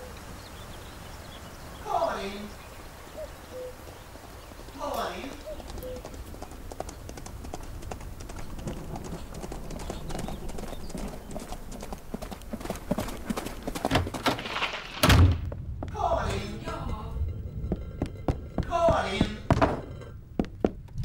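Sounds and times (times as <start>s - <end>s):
hooves clip-clopping on gravel: 3.7s - 21.0s
heavy thud: 15.0s - 20.6s.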